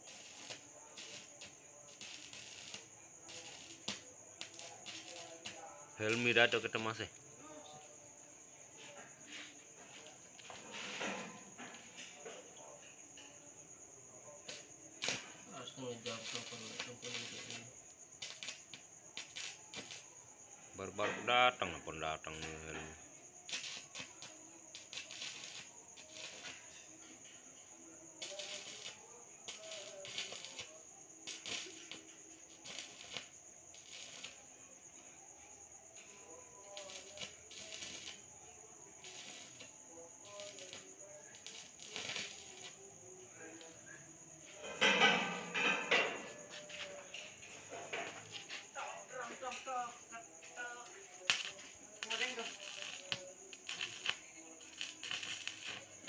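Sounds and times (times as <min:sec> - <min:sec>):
welding arc crackling and sizzling: 0:00.0 - 0:06.7, 0:14.5 - 0:20.1, 0:23.4 - 0:26.6, 0:28.2 - 0:34.4, 0:36.8 - 0:38.3, 0:39.0 - 0:39.7, 0:40.3 - 0:42.8, 0:51.3 - 0:56.0
crickets trilling: 0:00.0 - 0:56.0.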